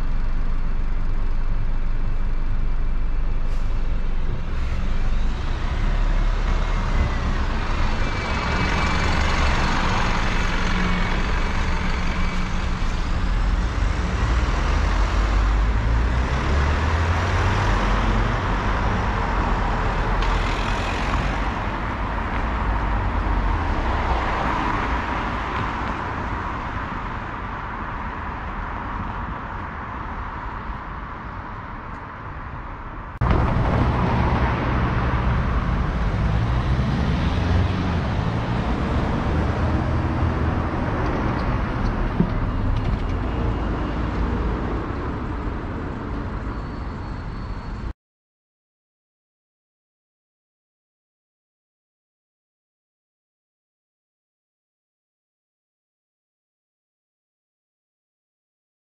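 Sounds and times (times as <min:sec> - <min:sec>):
road traffic passing: 0:00.0 - 0:47.9
vehicle accelerating away: 0:13.4 - 0:21.5, 0:33.2 - 0:42.0.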